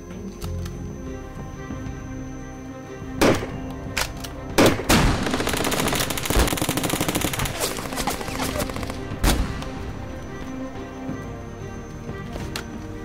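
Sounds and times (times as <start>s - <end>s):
rapid machine-gun burst: 4.6s - 10.6s.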